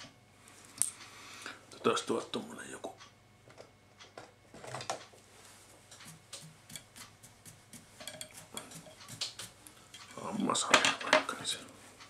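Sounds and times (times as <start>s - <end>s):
small clicks and taps of tools: 5.9s - 10.2s.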